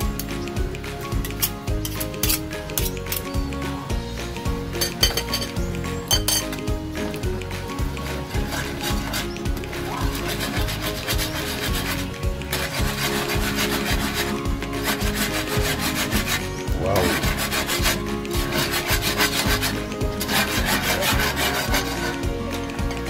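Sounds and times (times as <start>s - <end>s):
whisk scraping a metal wok: 10.0s - 22.2s.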